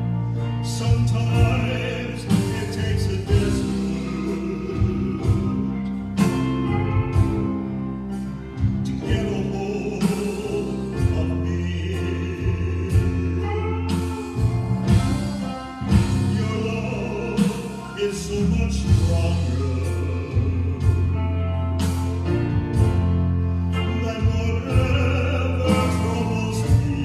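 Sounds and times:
live band: 0:00.0 - 0:27.0
low bass notes: 0:00.0 - 0:27.0
man singing gospel song: 0:00.0 - 0:27.0
drum hits: 0:12.9 - 0:16.6.

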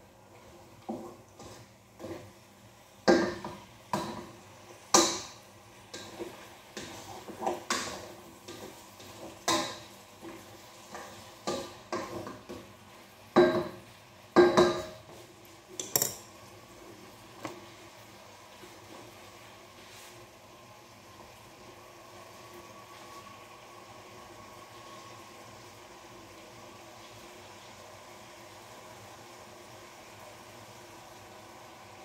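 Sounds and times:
spatula knocking metal pot: 0:03.0 - 0:04.3, 0:13.4 - 0:13.8, 0:14.4 - 0:15.0.

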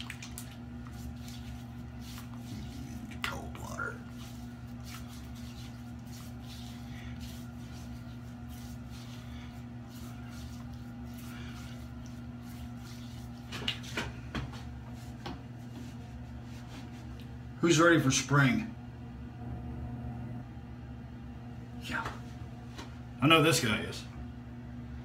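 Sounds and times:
water splashing on face: 0:00.0 - 0:14.1
steady low hum: 0:00.0 - 0:25.0.

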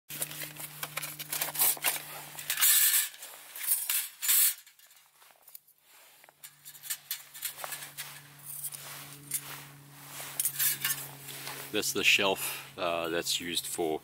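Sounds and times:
metal plates clicking and scraping: 0:00.1 - 0:05.1, 0:06.3 - 0:09.4, 0:10.4 - 0:11.1.

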